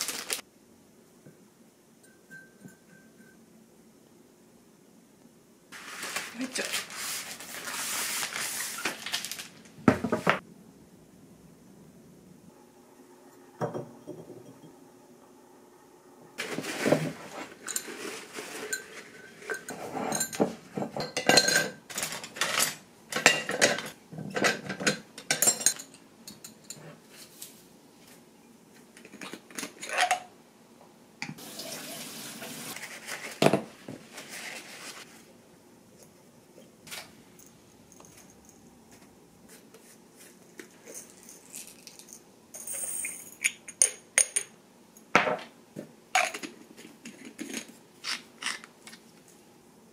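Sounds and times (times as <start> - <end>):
utensils and dishes clinking: 16.4 - 27.0, 29.2 - 30.3, 40.8 - 44.6, 46.2 - 48.7
running water: 31.4 - 32.8
peppercorns rattling into jar: 40.8 - 43.6.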